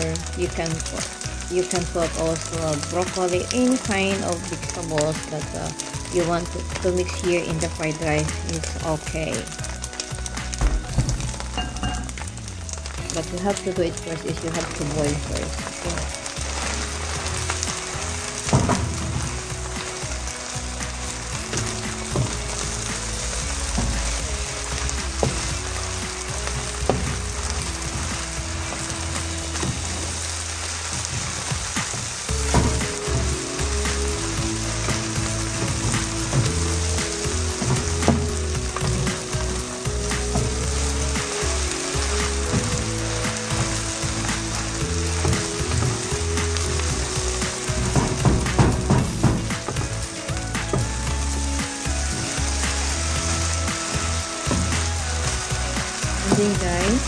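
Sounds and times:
rice sizzling in a hot pan: 0.0s - 57.0s
spatula scraping and knocking pan: 45.2s - 51.4s.

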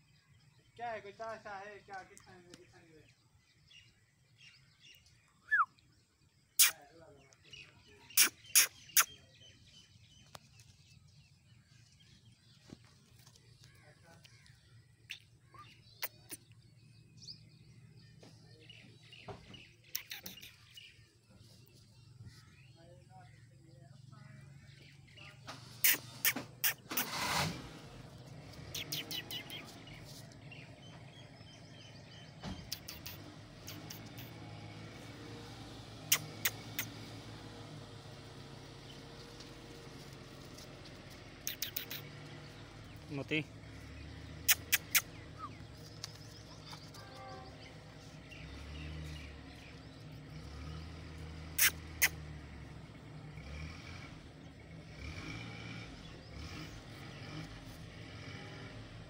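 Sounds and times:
faint bird chirps: 3.1s - 10.5s, 13.3s - 27.1s, 28.6s - 34.6s, 36.0s - 37.0s, 41.4s - 52.3s
sharp clicks: 32.6s - 34.3s, 41.4s - 42.1s.

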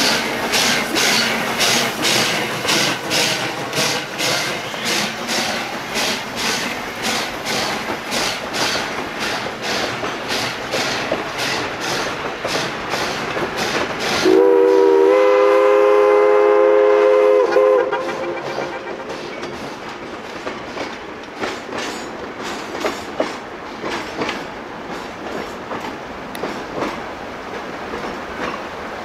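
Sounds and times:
steam locomotive chuffing: 0.0s - 28.7s
steam whistle chord: 14.2s - 19.1s.

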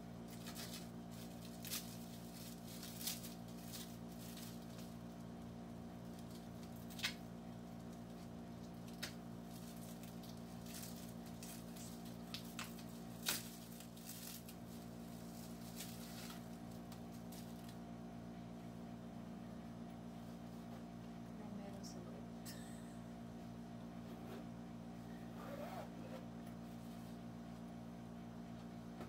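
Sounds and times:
low electrical hum: 0.0s - 29.0s
bubble wrap crinkling: 0.2s - 17.8s
bubble wrap snapping: 0.3s - 5.2s, 6.0s - 17.8s.

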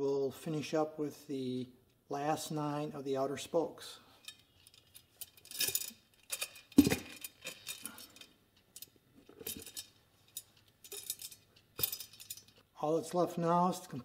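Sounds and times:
spokes clinking against wheel rim: 4.2s - 12.6s.

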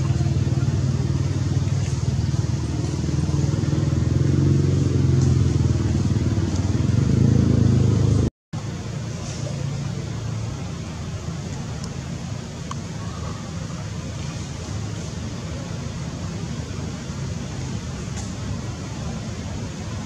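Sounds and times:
low motor hum: 0.0s - 20.0s.

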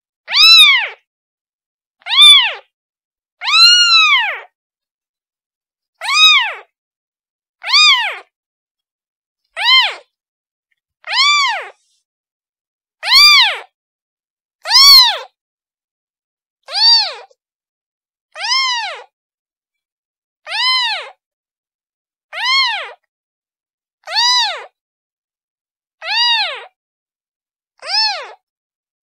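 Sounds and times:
kitten meowing: 0.3s - 1.0s, 2.0s - 2.7s, 3.4s - 4.5s, 6.0s - 6.7s, 7.6s - 8.3s, 9.6s - 10.1s, 11.1s - 11.8s, 13.0s - 13.7s, 14.6s - 15.4s, 16.7s - 17.4s, 18.4s - 19.1s, 20.5s - 21.2s, 22.3s - 23.0s, 24.0s - 24.8s, 26.0s - 26.7s, 27.8s - 28.4s.

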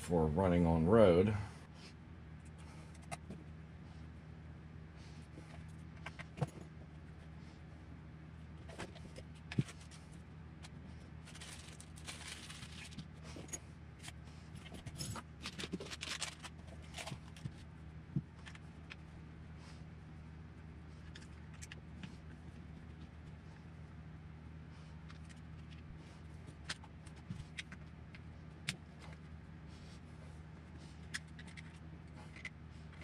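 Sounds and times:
steady low hum: 0.0s - 33.0s
rattling and rustling: 8.6s - 19.1s.

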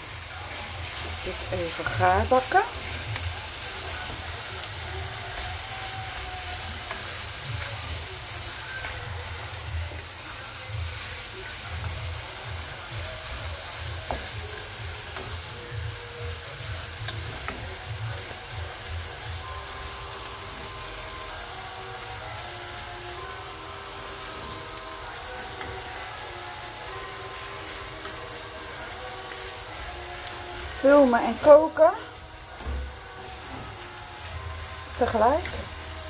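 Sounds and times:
chicken and onions sizzling in pan: 0.0s - 36.0s.

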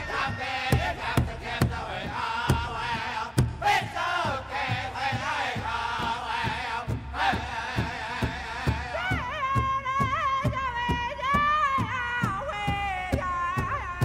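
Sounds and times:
male voices chanting in unison: 0.0s - 9.1s
steady bass drum beat: 0.0s - 14.0s.

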